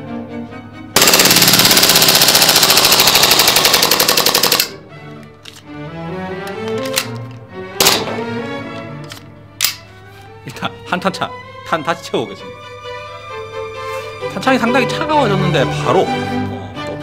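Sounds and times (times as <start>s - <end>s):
airsoft pistol full-auto burst: 1.0s - 4.8s.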